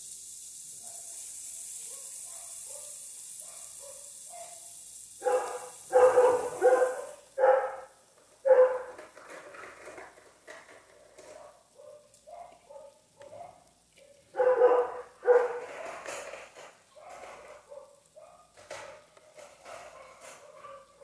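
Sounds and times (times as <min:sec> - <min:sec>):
sandwich maker sizzling: 0:00.0 - 0:21.0
dog barking: 0:00.8 - 0:01.2, 0:01.8 - 0:09.0, 0:11.3 - 0:16.1, 0:16.9 - 0:19.1, 0:19.7 - 0:21.0
dog yipping: 0:01.9 - 0:04.6, 0:05.2 - 0:07.8, 0:08.5 - 0:08.9, 0:11.4 - 0:13.6, 0:14.4 - 0:15.9, 0:19.9 - 0:21.0.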